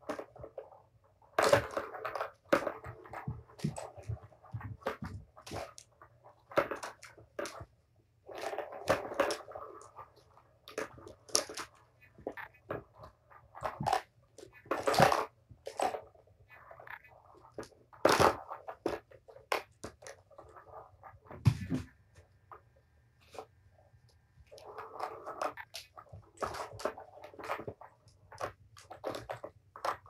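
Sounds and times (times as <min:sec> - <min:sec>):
kittens scuffling and knocking: 0:01.4 - 0:22.2.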